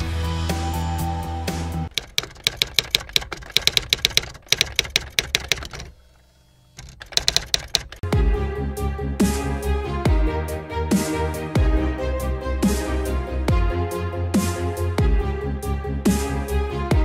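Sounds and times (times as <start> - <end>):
music: 0.0 - 1.9, 8.0 - 17.0
typewriter key clicks: 1.9 - 5.9, 6.8 - 8.0
electronic music: 8.0 - 17.0.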